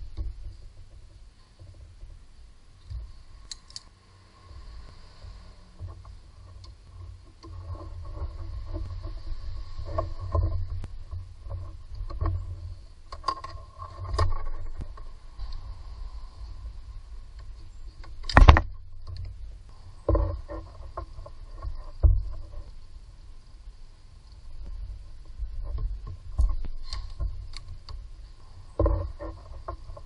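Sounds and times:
low rumble: 0.0 - 30.0.

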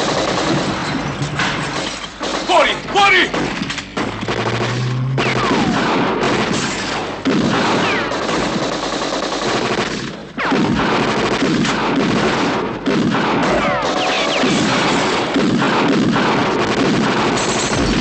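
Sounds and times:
rifle gunfire: 0.0 - 1.0, 1.6 - 18.0
bullet ricochet whines: 4.0 - 8.1, 13.4 - 15.1.

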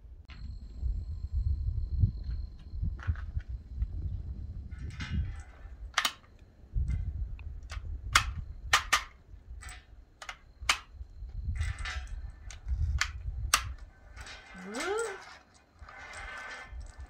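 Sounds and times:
cartridges clicking into magazine: 6.0 - 6.4, 7.7 - 11.0.

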